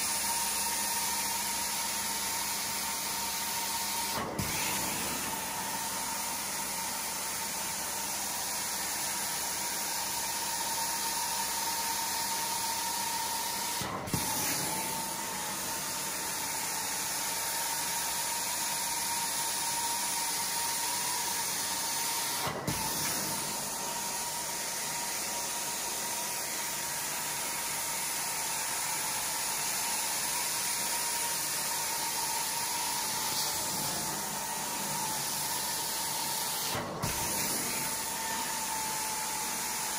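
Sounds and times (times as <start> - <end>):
carpet extraction wand suction hiss: 3.3 - 7.5, 13.3 - 39.9.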